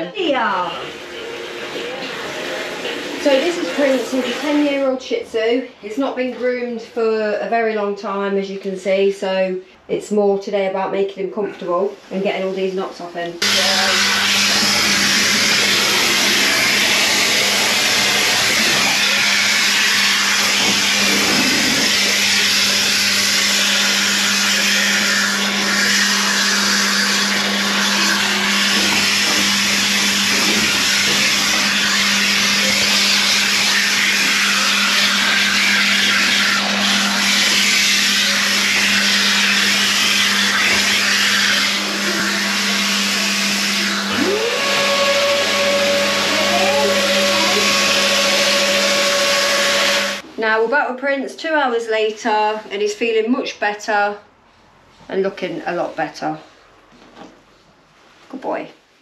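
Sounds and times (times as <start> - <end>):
water spraying from hose: 0.3 - 5.0, 13.4 - 50.2.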